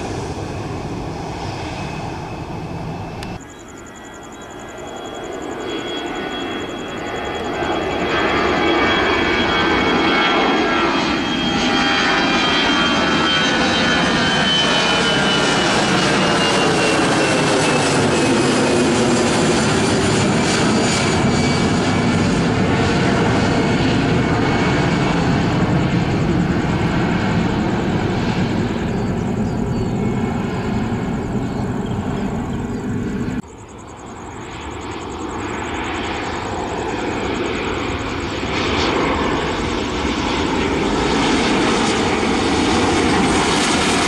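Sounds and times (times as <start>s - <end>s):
jet engines roaring: 0.0s - 44.0s.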